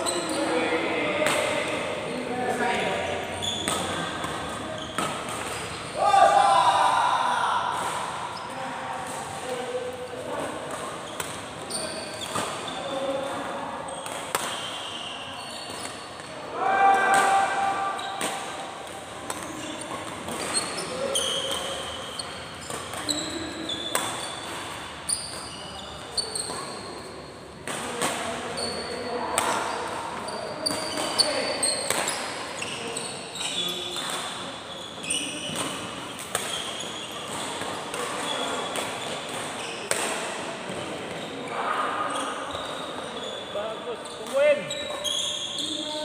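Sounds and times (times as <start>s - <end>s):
shoes squeaking on court floor: 0.0s - 6.1s, 7.3s - 16.5s, 17.3s - 46.0s
busy hall din: 0.0s - 25.7s
racket hitting shuttlecock: 3.6s - 5.8s, 14.0s - 14.8s, 16.9s - 20.7s, 21.4s - 25.4s, 30.6s - 32.4s, 35.5s - 40.4s.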